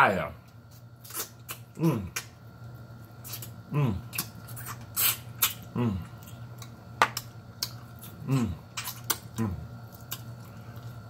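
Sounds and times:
lip-smack and sucking clicks: 0.7s - 2.4s, 8.7s - 9.4s
man sucking and chewing: 0.7s - 11.0s.

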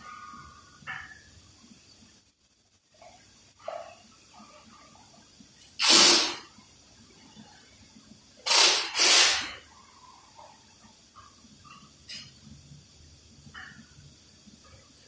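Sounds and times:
compressed air blowgun blasts: 5.8s - 6.4s, 8.4s - 9.6s.

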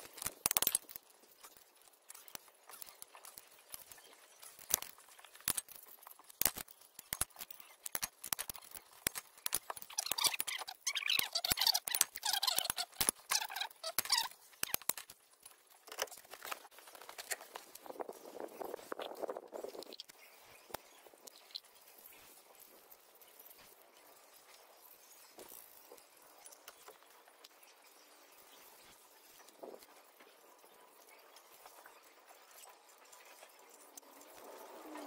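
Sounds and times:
fast clicking and scraping: 0.0s - 30.3s.

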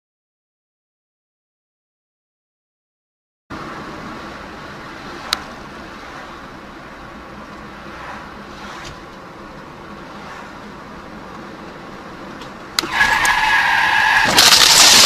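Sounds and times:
car road and engine noise: 3.5s - 15.0s.

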